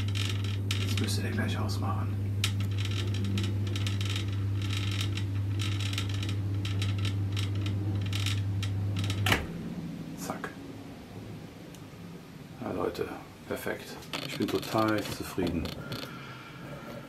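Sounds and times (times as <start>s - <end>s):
light clicks and rattles: 0.0s - 1.5s, 2.3s - 9.5s, 13.8s - 16.2s
water pump humming: 0.0s - 13.6s.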